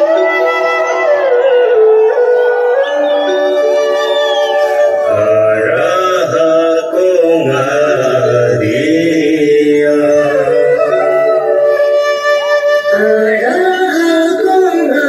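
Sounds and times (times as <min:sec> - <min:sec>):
steady held tones: 0:00.0 - 0:14.6
low chanting voices: 0:04.1 - 0:11.5.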